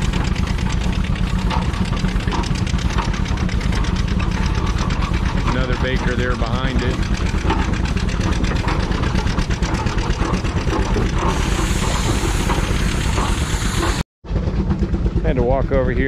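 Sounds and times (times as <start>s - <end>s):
tractor engine running: 0.0s - 16.0s
hiss: 11.2s - 14.0s.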